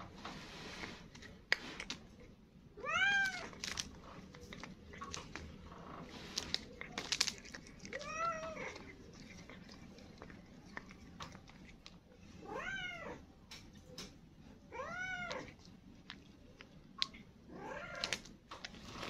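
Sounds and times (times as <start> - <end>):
cat eating off plastic wrapper: 0.2 - 12.6, 15.1 - 19.0
cat meowing: 2.8 - 3.6, 7.9 - 8.8, 12.4 - 13.2, 14.7 - 15.6.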